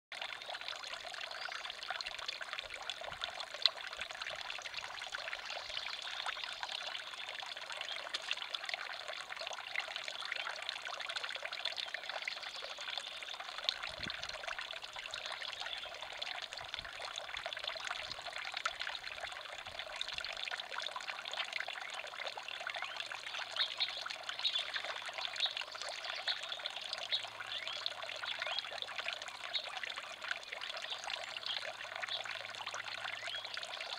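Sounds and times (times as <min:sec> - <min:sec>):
fountain water trickling: 0:00.1 - 0:33.9.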